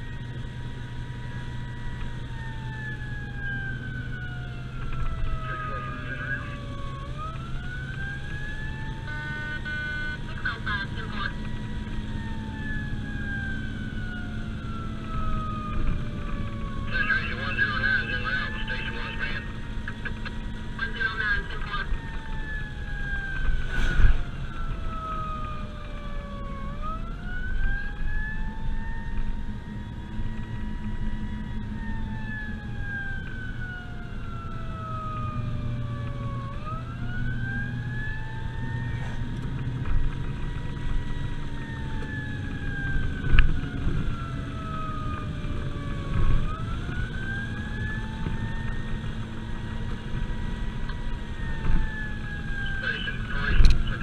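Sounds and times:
engine and road noise: 0.0 - 54.0
fire truck siren wailing: 0.0 - 54.0.

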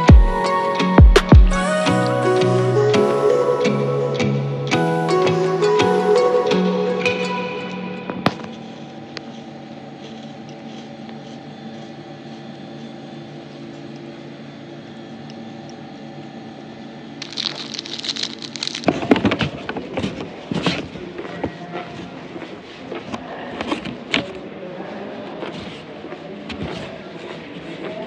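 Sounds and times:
low room hum: 7.5 - 26.0
plastic wrapper crinkling: 17.2 - 19.2.

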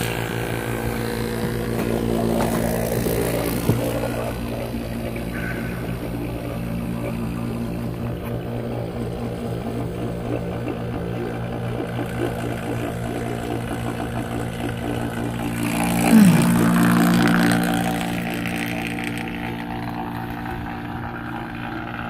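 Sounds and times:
vacuum pump motor hum: 0.0 - 22.0
swell with falling pitch: 16.0 - 18.3.

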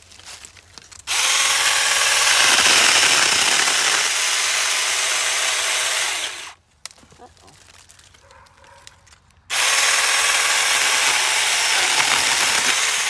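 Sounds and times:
mini chainsaw cutting wood: 1.1 - 6.6, 9.5 - 13.0.

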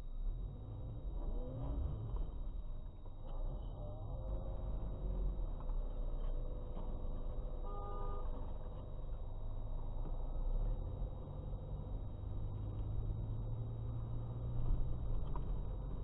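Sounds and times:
car road and engine noise: 0.0 - 16.0
car horn honk: 7.6 - 8.5.

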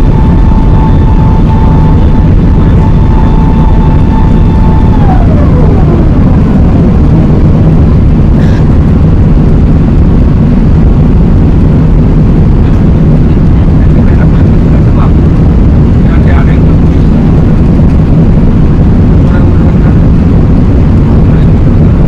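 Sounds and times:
jet engine roar in cabin: 0.0 - 22.0
thin whine: 0.0 - 22.0.

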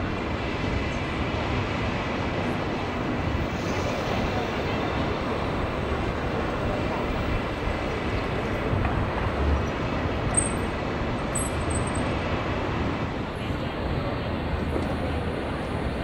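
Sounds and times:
road traffic rumble: 0.0 - 16.0.

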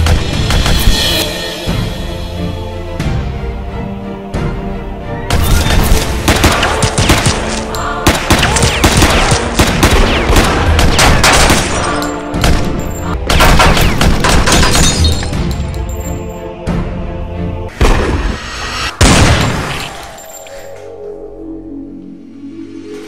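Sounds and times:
dramatic soundtrack music: 0.0 - 23.0
rapid gunfire: 6.1 - 12.6, 13.2 - 14.9.

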